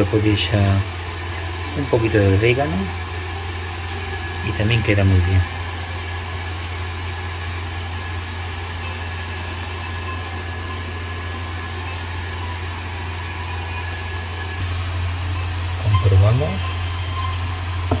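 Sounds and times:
steady low hum: 0.0s - 18.0s
light hiss: 14.6s - 18.0s.

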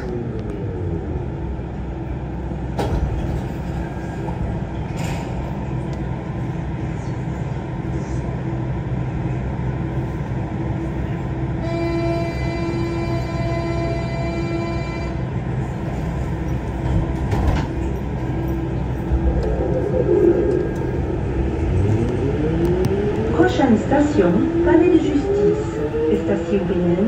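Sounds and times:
metro car hum and rumble: 0.0s - 27.0s
multi-pitch whine: 18.3s - 23.2s.

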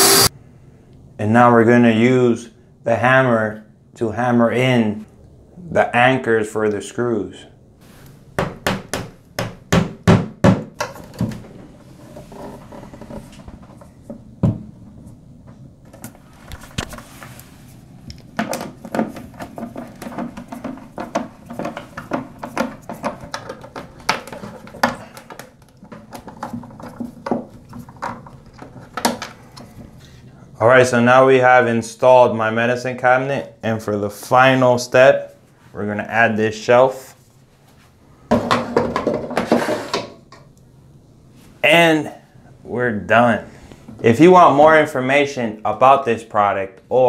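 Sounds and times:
screwdriver driving screws: 0.0s - 0.3s
hammer tapping wall anchors: 8.4s - 10.9s.

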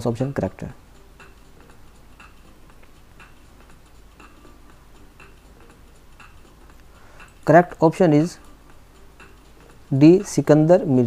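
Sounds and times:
clock ticking faintly: 0.0s - 11.0s.

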